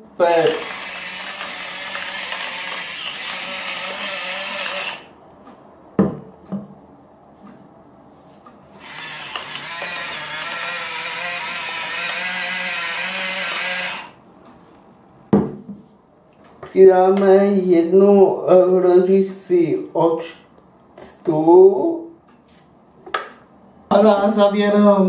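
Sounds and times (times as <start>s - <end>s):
electric grinder motor whirring: 0.5s - 5.1s, 8.8s - 14.2s.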